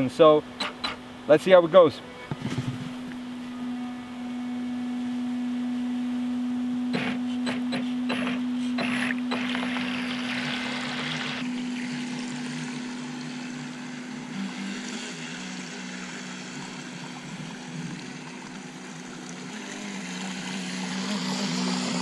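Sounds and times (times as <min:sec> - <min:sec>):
electric motor humming: 0:00.3 - 0:22.0
water wash: 0:08.2 - 0:22.0.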